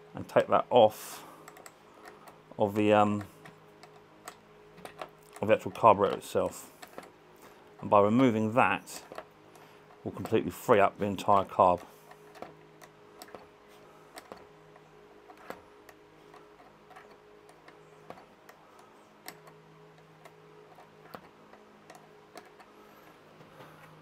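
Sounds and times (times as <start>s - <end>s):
faint steady hum: 0.0s - 24.0s
spanner clicking on metal: 1.4s - 7.1s, 15.3s - 22.7s.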